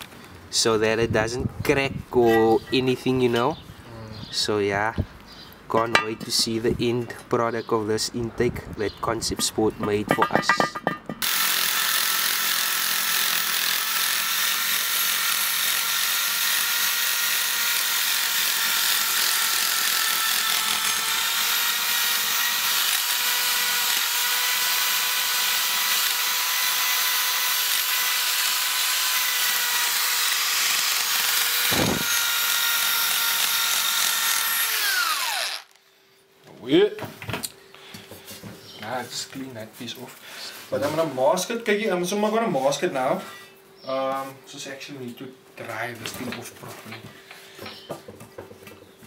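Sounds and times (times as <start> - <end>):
electric drill motor whining: 11.2 - 35.8.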